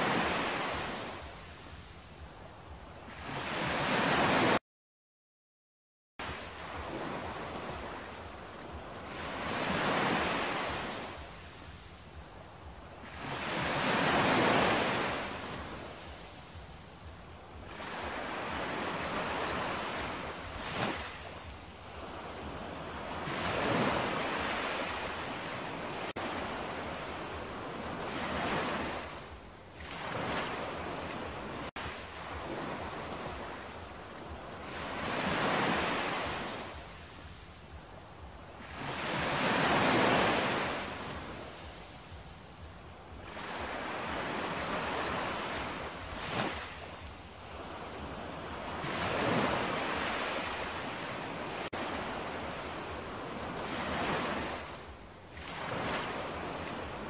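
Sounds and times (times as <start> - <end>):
ocean waves breaking on shore: 0.0 - 4.6, 6.2 - 57.0.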